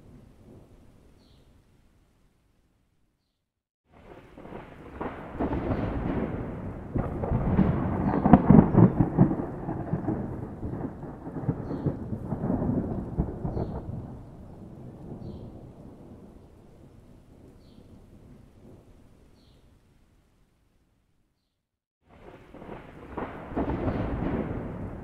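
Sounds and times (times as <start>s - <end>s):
rolling thunder: 3.9s - 18.9s, 22.1s - 25.0s
sharp thunder crack: 4.0s - 16.2s, 22.1s - 25.0s.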